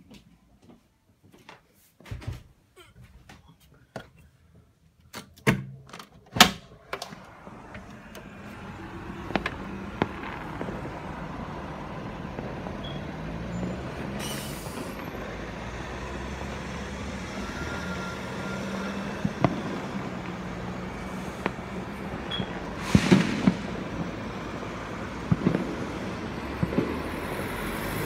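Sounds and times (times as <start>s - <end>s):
distant firework cracks: 6.8s - 17.5s, 18.4s - 28.0s
brief hiss: 14.2s - 15.0s, 22.8s - 24.0s
sharp knocks and bangs: 22.8s - 24.2s.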